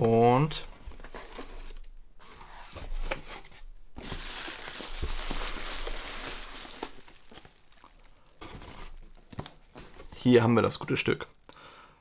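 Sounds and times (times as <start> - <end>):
bubble wrap crinkling: 4.0 - 10.3.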